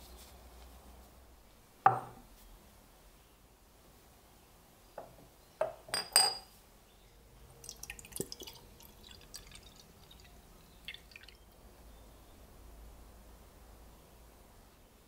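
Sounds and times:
metal clinking against glass jar: 0:05.9 - 0:06.5
liquid trickling into jar: 0:07.5 - 0:11.6.

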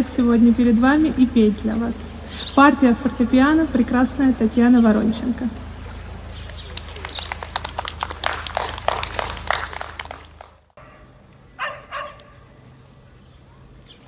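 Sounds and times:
audience applause: 0:06.3 - 0:10.8.

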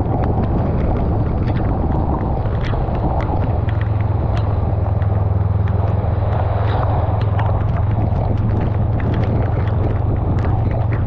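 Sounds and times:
motorcycle engine cruising: 0:00.0 - 0:11.0
raindrops ticking on camera: 0:00.0 - 0:11.0
wind: 0:00.0 - 0:11.0.

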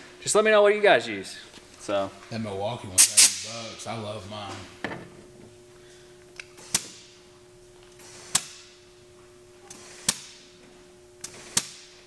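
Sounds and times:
faint steady hum: 0:00.0 - 0:12.0
compressed air hissing in bursts: 0:03.0 - 0:03.5, 0:08.0 - 0:08.5.

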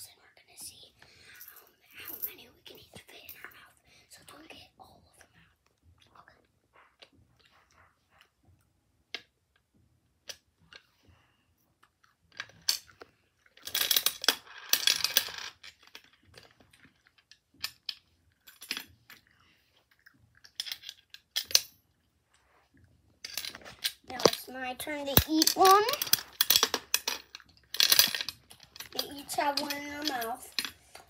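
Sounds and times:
coins clinking in toy machine: 0:13.6 - 0:15.5, 0:24.2 - 0:30.8.

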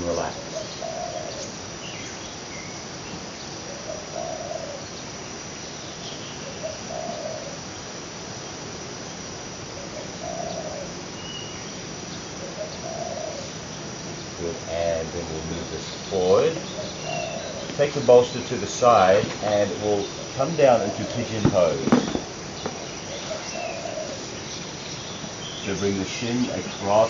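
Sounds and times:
dove cooing: 0:00.0 - 0:01.6, 0:03.7 - 0:04.9, 0:06.4 - 0:07.7, 0:09.8 - 0:11.0, 0:12.4 - 0:13.6, 0:14.4 - 0:27.0
faint bird chirps: 0:00.0 - 0:07.6, 0:09.8 - 0:15.0, 0:15.6 - 0:27.0
insects droning: 0:00.0 - 0:27.0.

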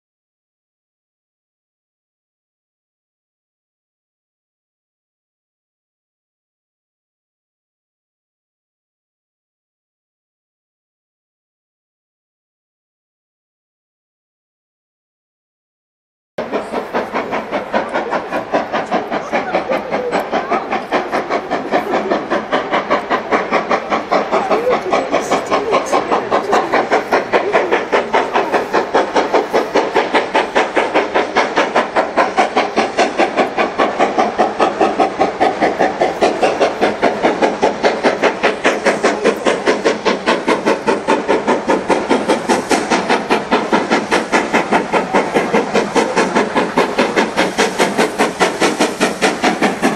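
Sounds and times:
steam locomotive chuffing: 0:16.4 - 0:49.9.

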